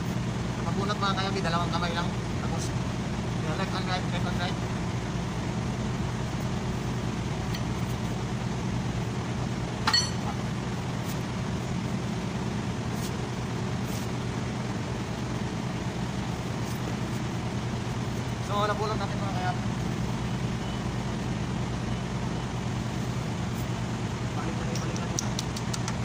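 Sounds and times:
low machine hum: 0.0s - 26.0s
sharp metallic clink: 9.9s - 10.3s.

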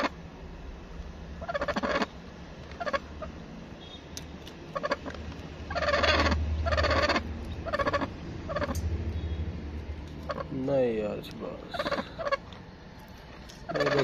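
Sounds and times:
low steady hum: 0.0s - 14.0s
hen making harsh calls: 1.4s - 2.2s, 2.8s - 3.4s, 4.7s - 5.1s, 5.7s - 8.8s, 10.2s - 10.6s, 11.6s - 12.5s, 13.6s - 14.0s.

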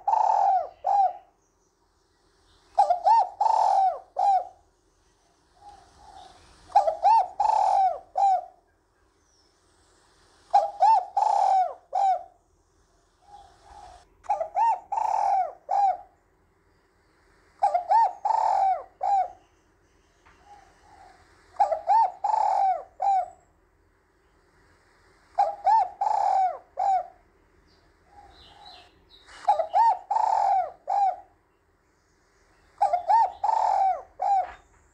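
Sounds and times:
dove cooing: 0.0s - 1.4s, 2.7s - 4.7s, 5.3s - 8.7s, 10.4s - 12.4s, 13.2s - 16.2s, 17.6s - 19.5s, 20.3s - 23.5s, 25.3s - 31.5s, 32.6s - 34.9s.

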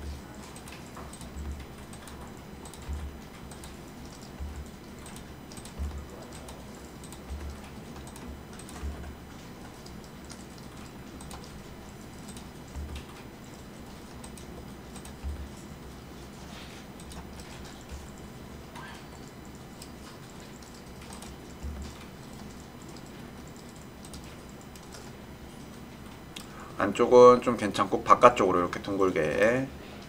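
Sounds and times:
keyboard and mouse clicks: 0.0s - 15.8s, 16.9s - 25.1s.

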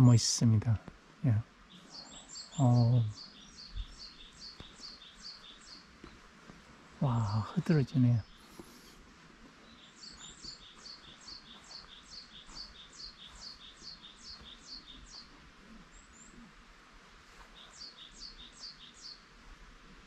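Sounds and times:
songbird singing high falling notes: 1.7s - 6.2s, 9.6s - 16.6s, 17.4s - 19.3s.

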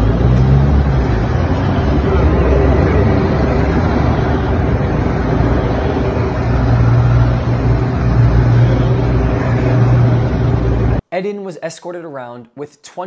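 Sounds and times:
low engine hum: 0.0s - 11.0s
vehicles driving past: 0.0s - 11.0s.

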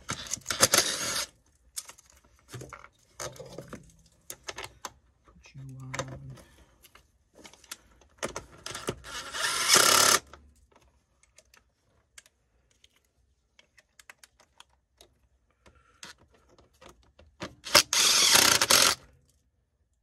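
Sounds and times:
cordless impact driver rattling: 0.0s - 1.3s, 8.4s - 10.4s, 17.4s - 19.1s.

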